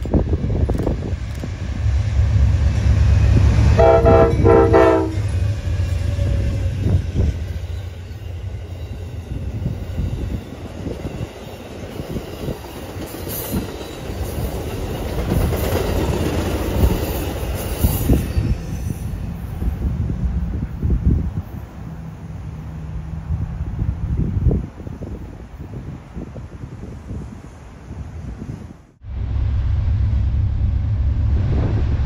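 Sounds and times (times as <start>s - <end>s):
locomotive rumbling: 0.0s - 27.4s, 28.0s - 32.0s
train horn blasts: 3.3s - 7.0s.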